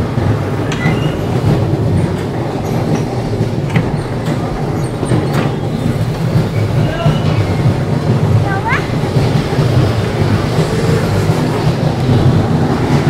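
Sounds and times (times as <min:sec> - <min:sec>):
bumper car motor rumble: 0:00.0 - 0:13.0
faint clicks and squeaks: 0:00.7 - 0:08.0.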